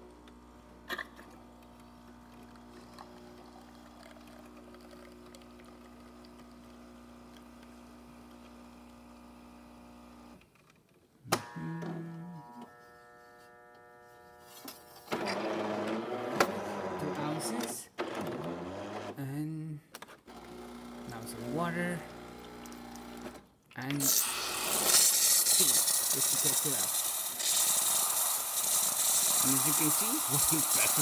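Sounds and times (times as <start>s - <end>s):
espresso machine pump humming: 0.0s - 10.4s, 20.4s - 23.4s, 24.0s - 31.0s
brew unit motor running: 1.4s - 10.4s, 15.1s - 17.8s, 20.4s - 23.4s, 24.0s - 31.0s.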